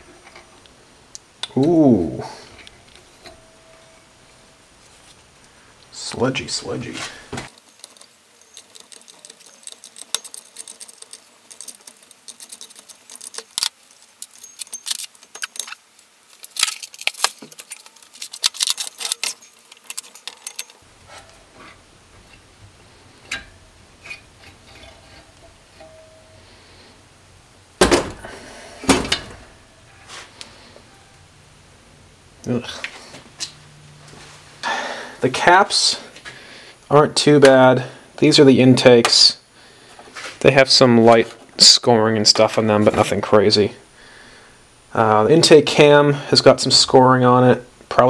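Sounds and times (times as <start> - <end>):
metal parts and tools clinking: 7.5 - 22.5, 23.2 - 26.6.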